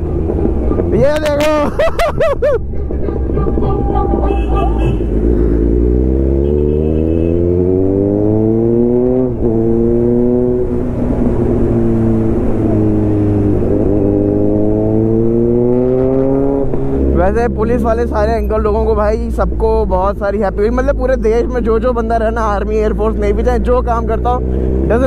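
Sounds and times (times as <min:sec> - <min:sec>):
motorcycle engine accelerating: 0:02.2 - 0:18.1.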